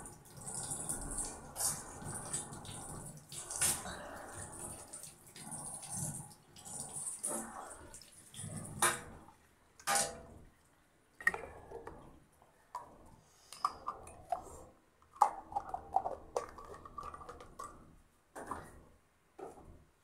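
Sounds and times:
water splashing and dripping: 0.0s - 10.0s, 15.2s - 17.9s
plastic items clicking and knocking: 13.6s - 17.8s.

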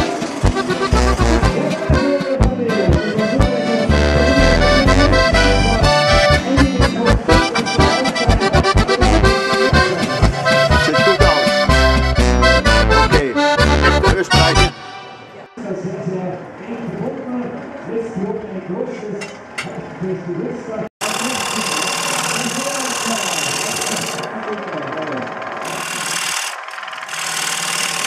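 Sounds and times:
instrumental folk music: 0.0s - 15.6s.

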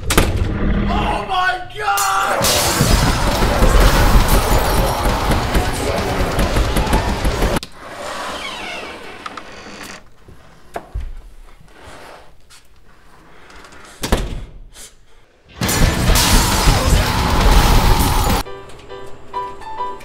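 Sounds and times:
loud crashing noise: 2.4s - 7.6s, 15.6s - 18.4s.

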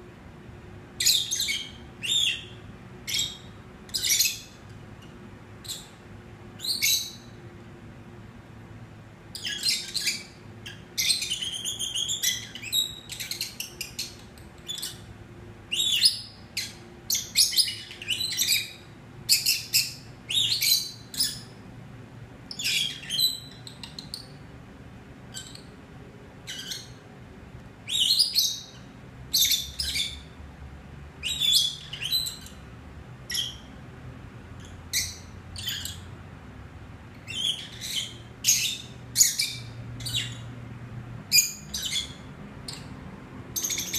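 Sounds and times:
lovebirds chirping: 1.0s - 6.0s, 6.6s - 7.4s, 9.4s - 15.1s, 15.7s - 21.6s, 22.5s - 24.4s, 25.3s - 25.8s, 26.4s - 27.0s, 27.8s - 30.4s, 31.2s - 33.8s, 34.5s - 36.2s, 37.1s - 40.6s, 41.3s - 43.9s.

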